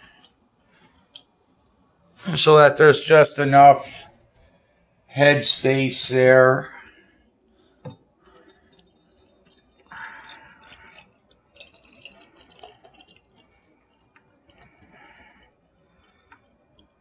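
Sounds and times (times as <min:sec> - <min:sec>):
liquid pouring into glass jar: 0:07.9 - 0:17.0.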